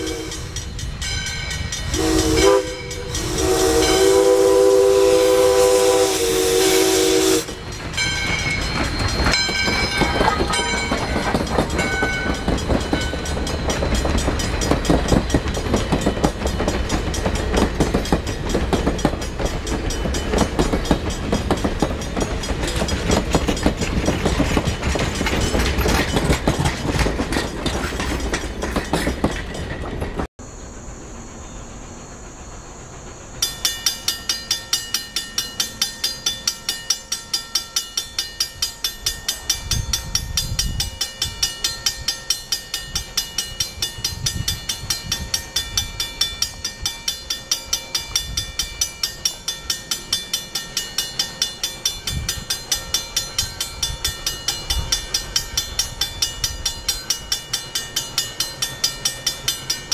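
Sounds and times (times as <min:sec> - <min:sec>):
train coaches rolling on rails: 0:00.0 - 0:59.9
warning bell ringing: 0:07.4 - 0:23.9.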